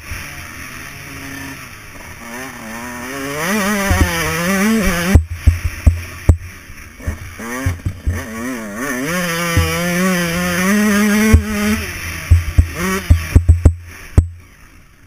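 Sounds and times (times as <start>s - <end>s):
dirt bike engine revving: 0.0s - 15.0s
knocks from bumps: 3.8s - 8.4s, 9.5s - 10.0s, 11.2s - 14.4s.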